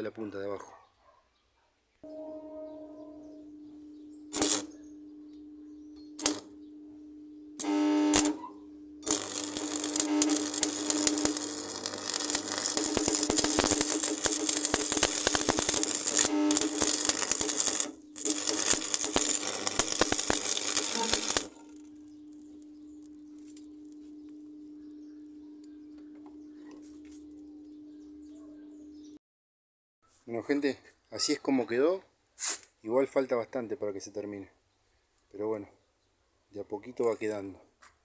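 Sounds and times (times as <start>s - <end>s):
arc welder crackling sizzle: 4.1s - 6.7s, 7.3s - 27.5s.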